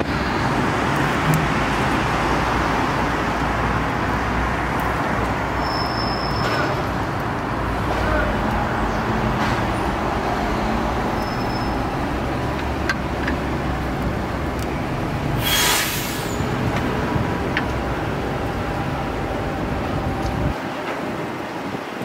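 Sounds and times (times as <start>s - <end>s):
street traffic rumble: 0.0s - 22.0s
short hiss: 15.4s - 16.4s.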